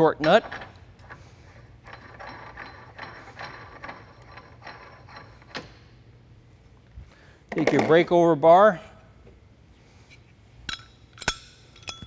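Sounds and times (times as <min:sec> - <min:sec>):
nut spinning on metal threads: 0:01.0 - 0:05.6.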